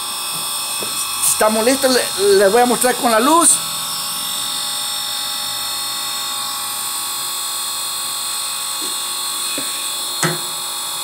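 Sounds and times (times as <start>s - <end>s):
grinding wheel motor whine: 0.0s - 11.0s.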